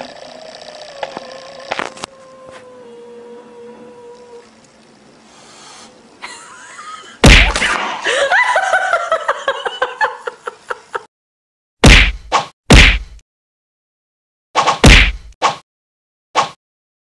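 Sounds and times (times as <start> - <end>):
foil balloon bursting: 7.2 - 7.9
sharp whacks: 7.2 - 8.0, 11.8 - 13.2, 14.6 - 15.6, 16.4 - 16.6.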